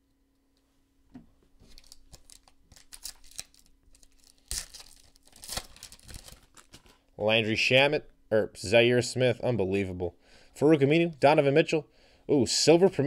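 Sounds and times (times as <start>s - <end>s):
foil wrapper tearing and crinkling: 1.7s - 7.0s.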